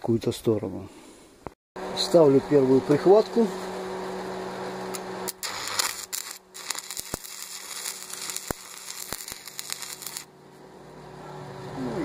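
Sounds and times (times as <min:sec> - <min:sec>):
steady hum: 0:01.3 - 0:12.0
arc welding crackling: 0:02.5 - 0:10.8.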